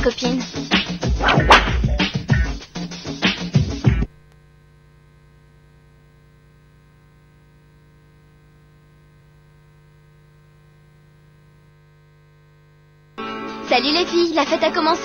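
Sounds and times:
faint electrical hum: 4.1s - 13.2s.

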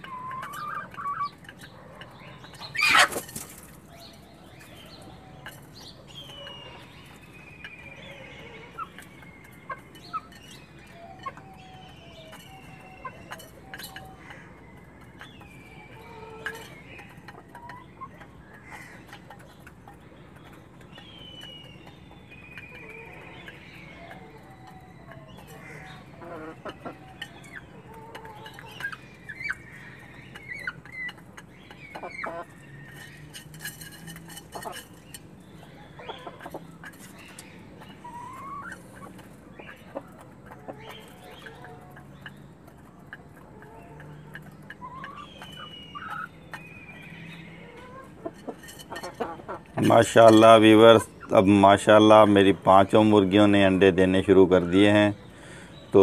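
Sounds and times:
high gliding bird calls: 0.0s - 19.6s, 34.4s - 42.5s, 43.6s - 56.0s
hens clucking: 0.0s - 56.0s.

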